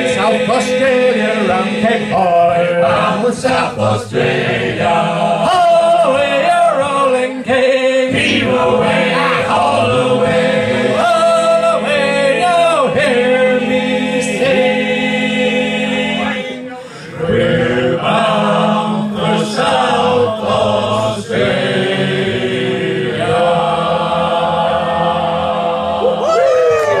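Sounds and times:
male choir singing a cappella: 0:00.0 - 0:26.3
person breathing: 0:16.7 - 0:17.2.

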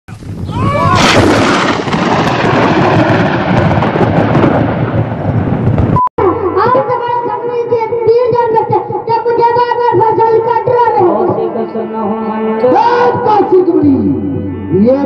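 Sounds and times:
thunder crash rumbling: 0:00.1 - 0:06.0
harmonium music: 0:09.0 - 0:15.0.

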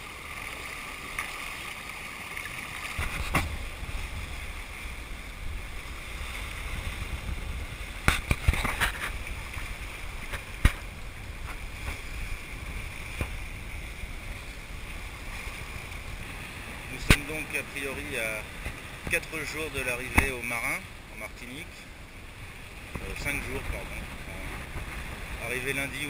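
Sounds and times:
water rushing along hull: 0:00.0 - 0:26.0
wind rumbling on microphone: 0:02.7 - 0:26.0
sharp knocks: 0:03.0 - 0:03.6.

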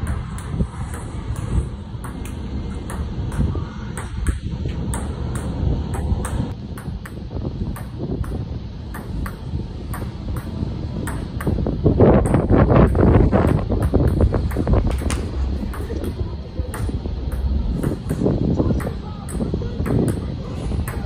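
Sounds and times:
wind rumble on microphone: 0:00.0 - 0:21.0.

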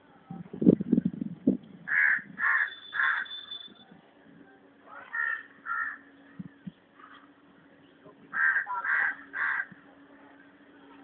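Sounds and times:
crows cawing: 0:01.9 - 0:03.4, 0:05.0 - 0:06.1, 0:08.3 - 0:09.8.

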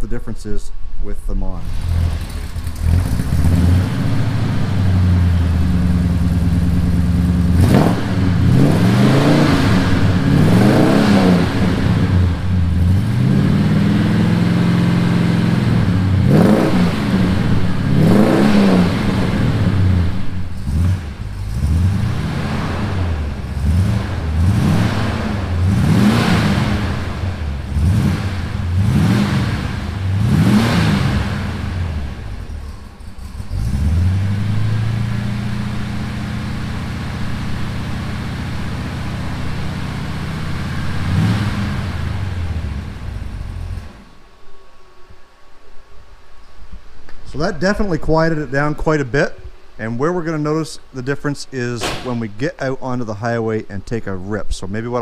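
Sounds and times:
pickup engine revving: 0:01.4 - 0:44.2.

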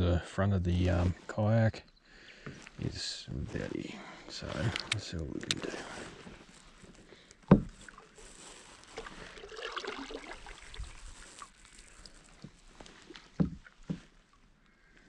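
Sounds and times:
kayak paddle stroking through water: 0:05.6 - 0:14.6.

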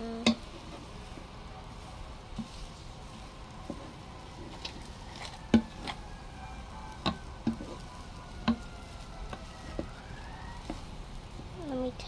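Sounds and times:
rice sizzling: 0:00.0 - 0:12.0
wooden spoon knocking on pot: 0:04.6 - 0:06.0, 0:07.0 - 0:07.8, 0:08.4 - 0:08.7.

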